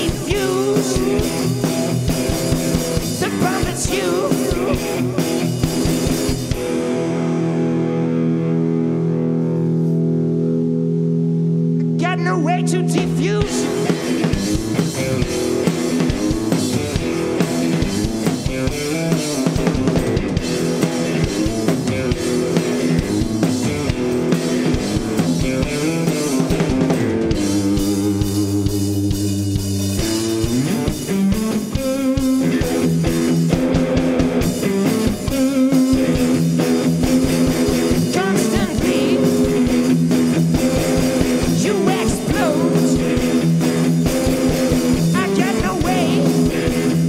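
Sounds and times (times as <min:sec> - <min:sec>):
drum kit played hard: 0:00.0 - 0:08.4, 0:11.8 - 0:47.0
electric guitar: 0:00.0 - 0:47.0.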